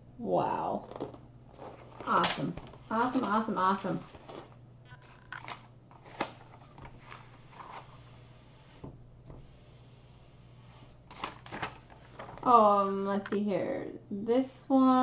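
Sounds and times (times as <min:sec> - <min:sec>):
plastic sheets rustling and crinkling: 0:00.8 - 0:08.9, 0:10.7 - 0:12.7.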